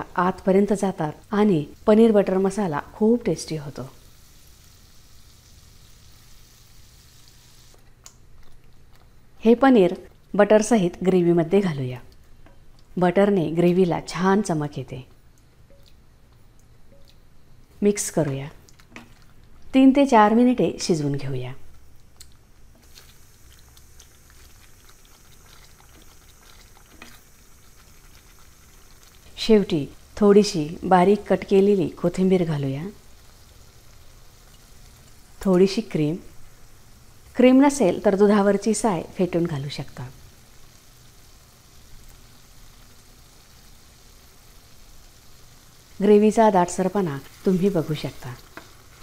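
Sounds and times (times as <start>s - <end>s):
low steady hum: 0.0s - 49.0s
sauce bubbling in a pan: 3.7s - 7.7s, 22.7s - 49.0s
gravy bubbling and popping: 22.0s - 29.4s
spatula stirring: 23.6s - 29.1s, 47.3s - 49.0s.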